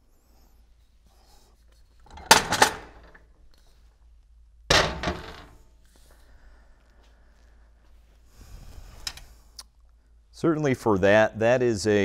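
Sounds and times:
metal clanking on bench: 2.1s - 3.2s, 4.7s - 5.6s.

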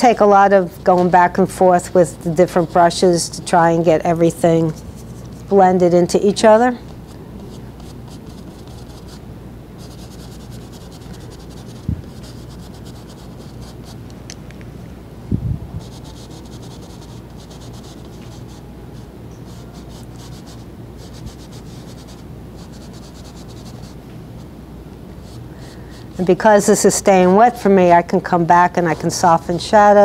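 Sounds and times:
low room hum: 0.0s - 30.0s
brush scrubbing on canvas: 9.8s - 14.0s, 15.8s - 24.0s.

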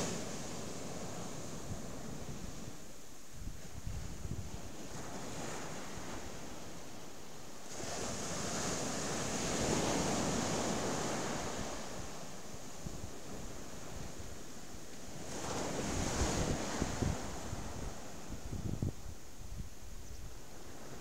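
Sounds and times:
wind buffeting microphone: 0.0s - 6.7s, 15.0s - 21.0s
surf breaking on a beach: 0.0s - 19.3s.

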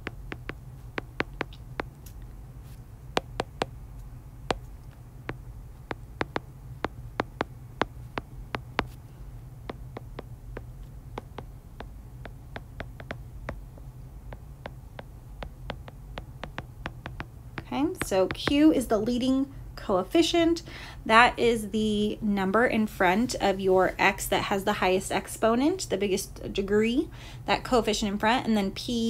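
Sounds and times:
stylus tapping on glass screen: 0.0s - 2.0s, 3.2s - 3.7s, 5.3s - 9.0s, 9.7s - 13.6s, 14.3s - 17.3s
steady low hum: 0.0s - 29.0s.

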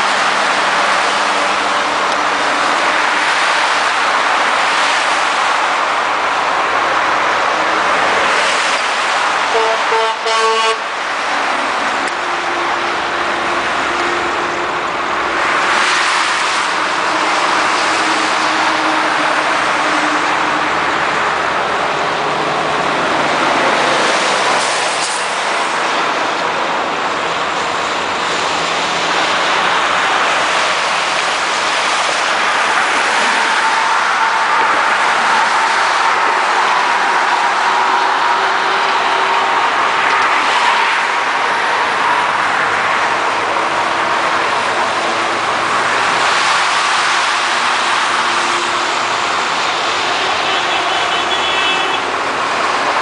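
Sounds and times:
vehicles driving past on highway: 0.0s - 53.0s.

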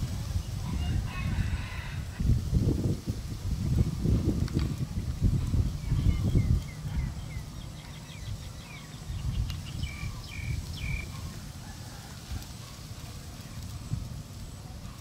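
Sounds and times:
small bird chirping: 5.7s - 11.4s.

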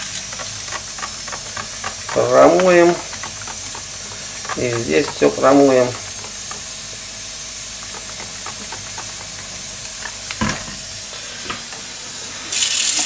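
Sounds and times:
sponge scrubbing circuit board: 0.0s - 7.0s, 7.7s - 10.3s
steady hiss: 0.0s - 13.0s.

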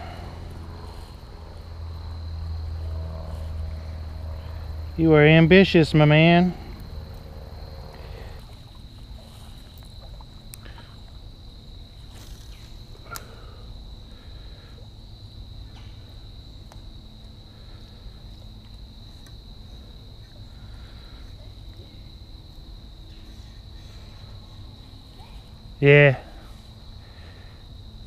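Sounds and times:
cricket trilling: 0.0s - 28.0s.

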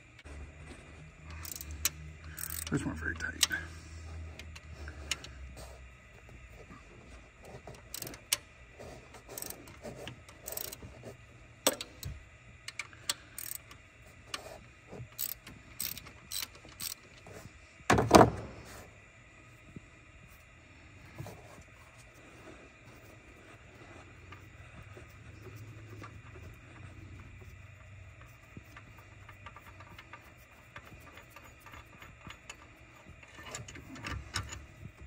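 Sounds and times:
ratchet wrench clicking: 1.2s - 3.6s, 7.8s - 8.5s, 9.2s - 10.8s, 11.6s - 13.8s, 15.1s - 17.1s, 24.3s - 34.9s.

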